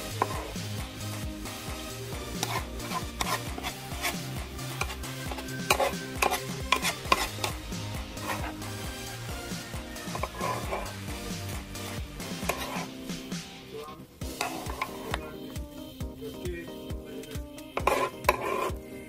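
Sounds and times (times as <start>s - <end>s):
utensils scraping a griddle: 0.0s - 0.7s, 2.1s - 8.9s, 9.5s - 11.2s, 11.8s - 13.1s, 14.2s - 15.2s, 17.8s - 18.9s.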